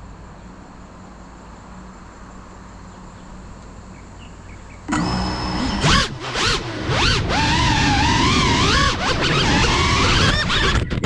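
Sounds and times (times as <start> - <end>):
outdoor background: 0.0 - 11.0
drone motors whining: 4.9 - 11.0.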